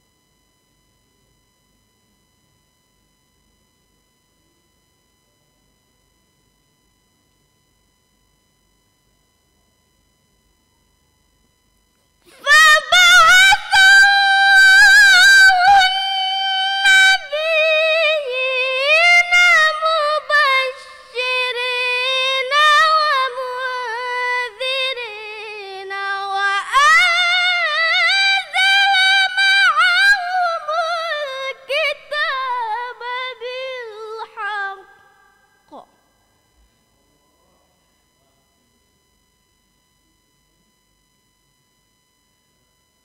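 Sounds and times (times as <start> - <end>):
girl reciting melodically: 12.3 - 35.0.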